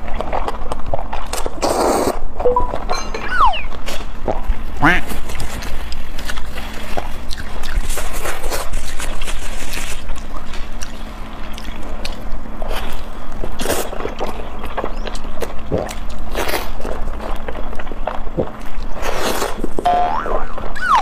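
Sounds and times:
wet chewing and mouth smacks: 0:05.3 - 0:19.8.

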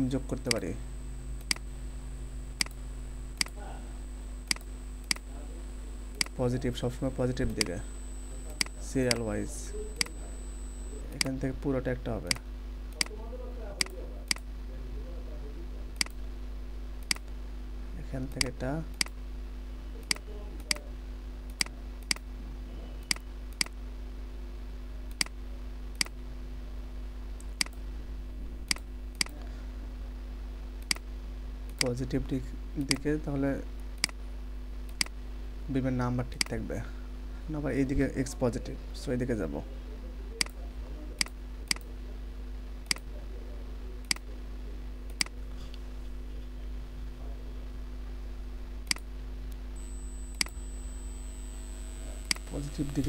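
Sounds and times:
steady low hum: 0:00.0 - 0:53.0
mouse button clicks: 0:07.2 - 0:09.3.

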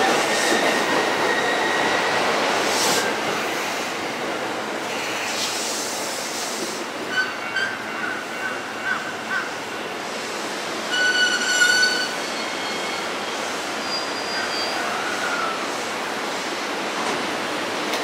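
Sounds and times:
train rumbling: 0:00.0 - 0:18.0.

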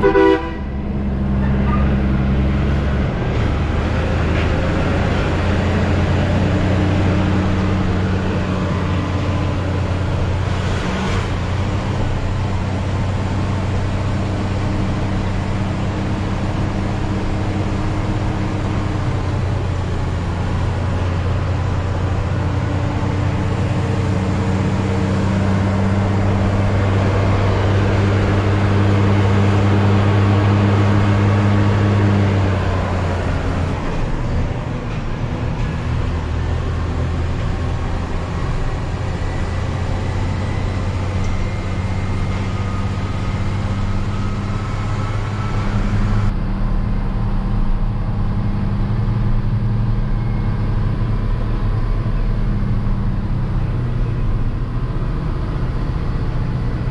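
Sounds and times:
diesel truck engine running: 0:00.0 - 0:56.9
tyre and road noise: 0:00.0 - 0:56.9.

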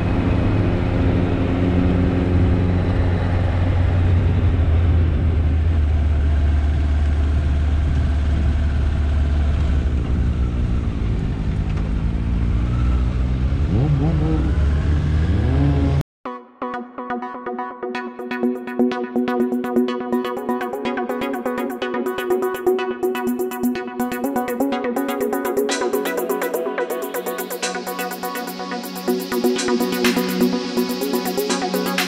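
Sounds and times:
wind roar on camera: 0:00.0 - 0:12.2
motorcycle engine running: 0:00.0 - 0:16.0
electronic music: 0:16.2 - 0:32.0.

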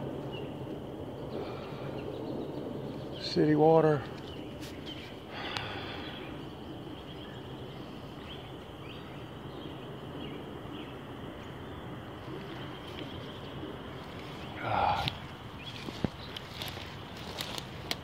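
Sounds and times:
woodland background noise: 0:00.0 - 0:18.0.

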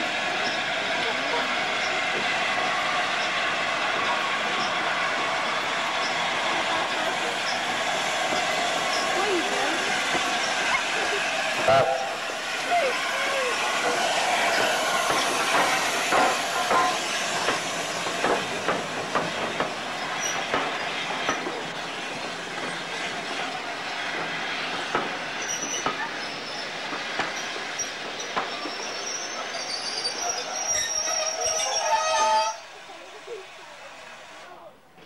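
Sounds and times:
train hissing rush: 0:00.0 - 0:35.0
high squeals: 0:28.5 - 0:32.7.

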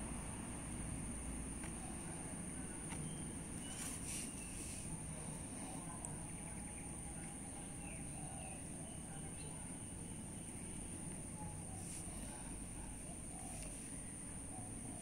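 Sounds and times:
faint bird-like chirps: 0:01.7 - 0:05.0.

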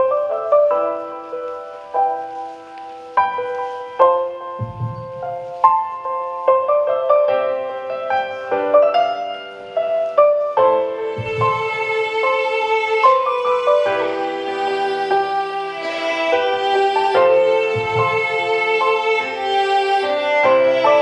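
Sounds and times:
slow piano music: 0:00.0 - 0:21.0.

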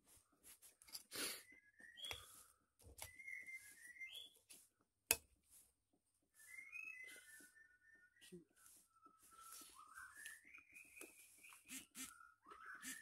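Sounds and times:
faint whistling tones: 0:01.3 - 0:04.7, 0:06.3 - 0:13.0.

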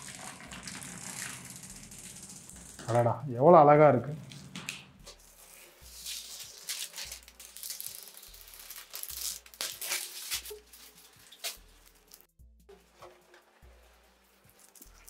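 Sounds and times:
plastic film crinkling: 0:00.0 - 0:03.1, 0:04.1 - 0:12.3
faint background music: 0:00.0 - 0:15.0.

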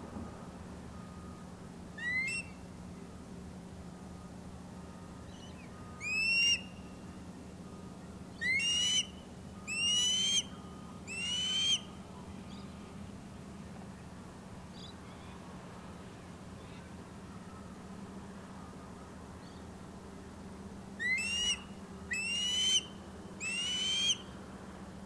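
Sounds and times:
steady low hum: 0:00.0 - 0:25.0
ospreys whistled calls: 0:02.0 - 0:02.6, 0:05.3 - 0:07.0, 0:08.3 - 0:11.9, 0:21.0 - 0:24.3.

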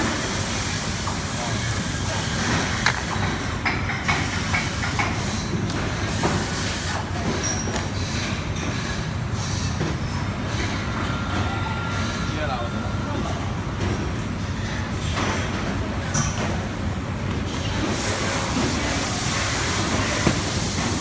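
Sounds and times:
low workshop rumble: 0:00.0 - 0:21.0.

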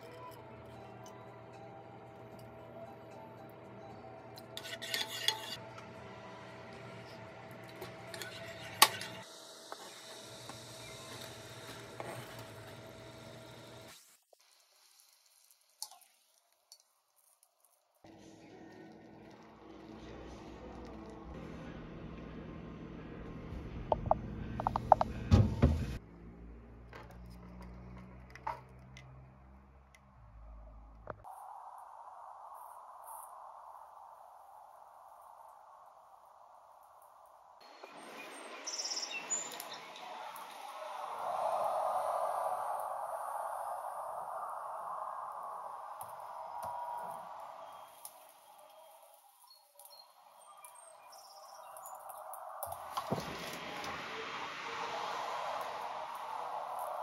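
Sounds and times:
onion scraped into pan: 0:04.6 - 0:05.6.

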